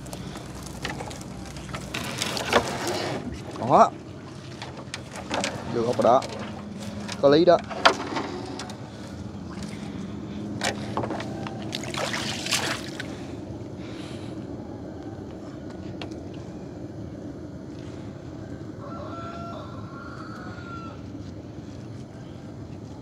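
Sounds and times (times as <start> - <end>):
steady low hum: 0.0 - 23.0
water splashing: 11.4 - 13.2.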